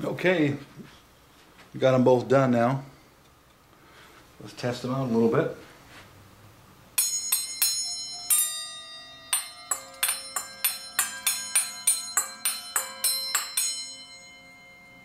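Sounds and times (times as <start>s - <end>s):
metal bowl bells ringing: 7.0s - 15.0s.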